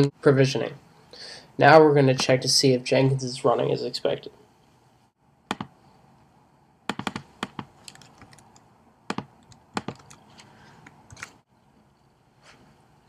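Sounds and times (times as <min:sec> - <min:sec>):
computer keyboard keystrokes: 0:06.9 - 0:11.3.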